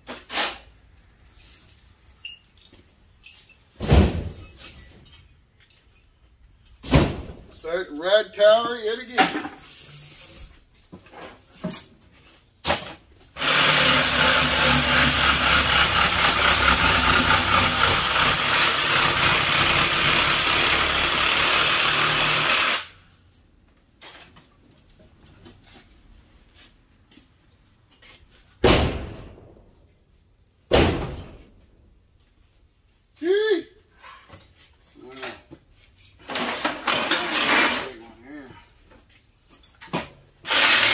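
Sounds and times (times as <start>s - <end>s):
power tool cutting metal: 13.4s - 23.0s, 40.5s - 40.9s.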